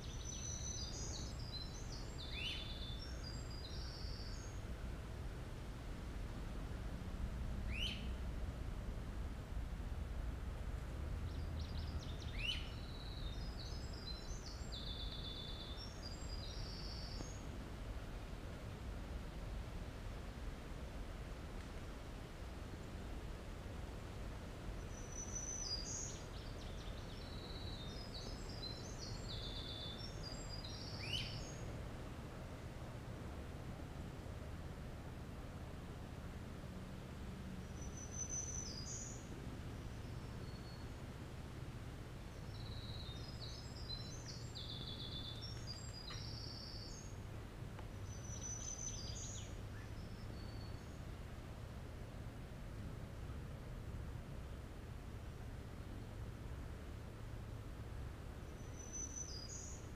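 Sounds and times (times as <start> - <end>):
wren singing trills: 0.0 - 4.6, 7.7 - 8.2, 11.3 - 17.4, 24.9 - 31.7, 37.8 - 39.3, 42.4 - 47.2, 48.0 - 51.0
steady low rumble: 0.0 - 58.8.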